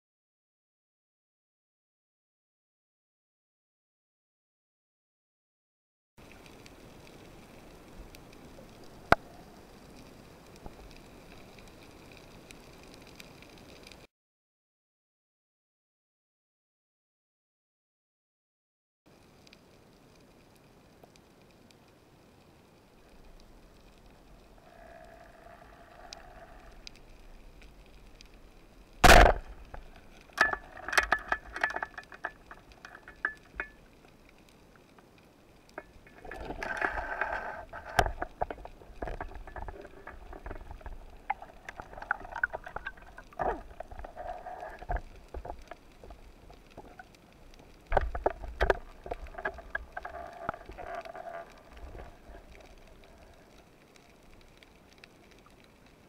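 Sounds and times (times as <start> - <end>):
speargun firing crack: 29.0 - 29.6
spear shaft clicking and rattling: 29.0 - 33.8.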